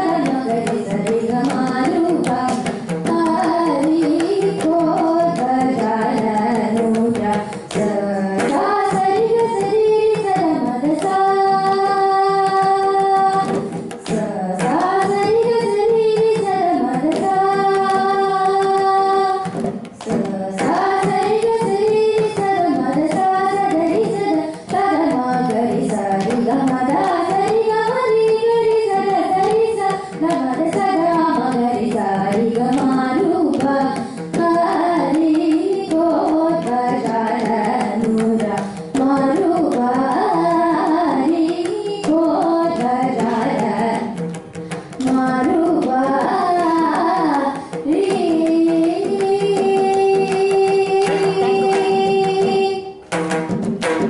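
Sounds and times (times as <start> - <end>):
girl singing melody: 0.0 - 53.0
drum strokes: 0.0 - 54.0.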